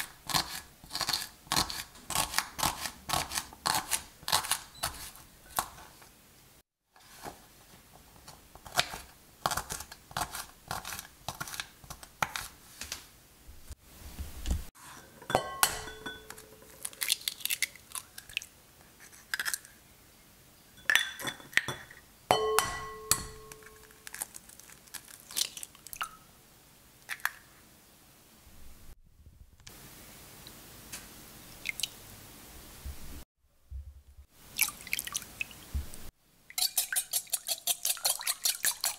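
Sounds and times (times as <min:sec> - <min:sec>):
eggshell crackling: 0:16.3 - 0:18.5, 0:23.5 - 0:26.1.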